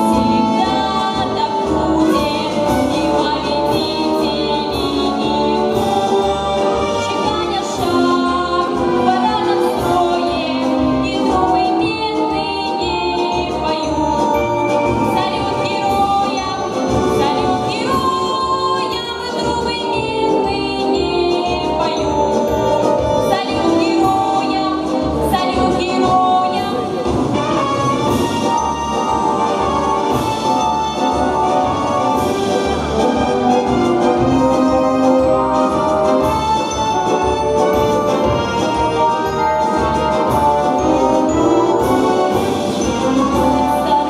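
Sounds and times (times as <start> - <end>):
girl singing pop song: 7.2 - 14.3.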